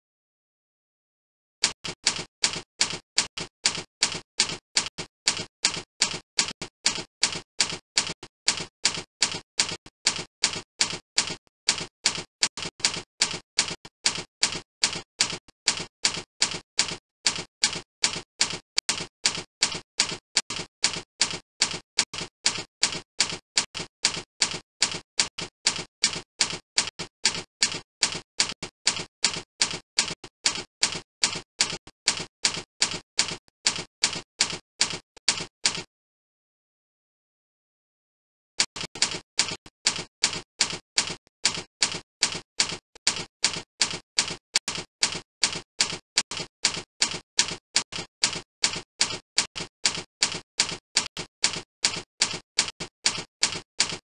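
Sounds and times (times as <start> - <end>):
typing clicks: 1.6 - 35.9, 38.6 - 54.0.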